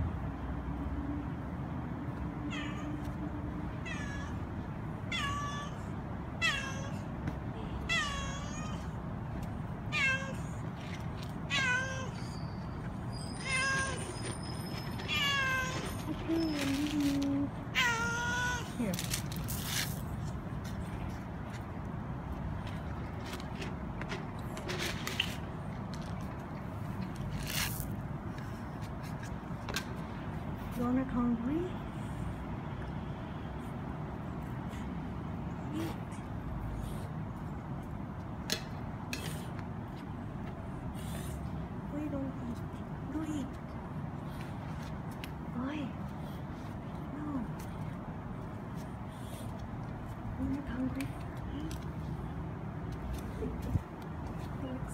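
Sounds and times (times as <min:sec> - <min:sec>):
low background hum: 0:00.0 - 0:54.9
cat meowing: 0:03.8 - 0:04.4, 0:07.8 - 0:09.0, 0:09.9 - 0:10.6, 0:11.5 - 0:12.4, 0:17.7 - 0:18.7
cats crunching dry kibble: 0:15.0 - 0:21.7, 0:22.6 - 0:27.9.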